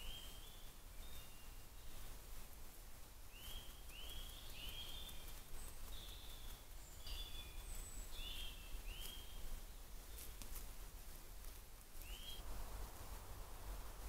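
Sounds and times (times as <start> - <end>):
songbirds whistling: 0.0 - 2.0, 3.3 - 9.5, 12.0 - 12.4
low steady rumble: 2.0 - 14.0.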